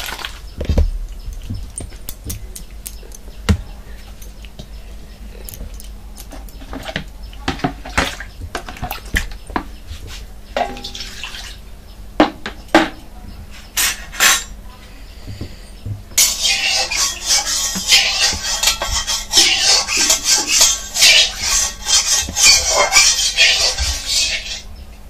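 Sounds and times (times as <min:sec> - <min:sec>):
metal pots clinking: 0:10.5 - 0:11.6, 0:16.2 - 0:24.1.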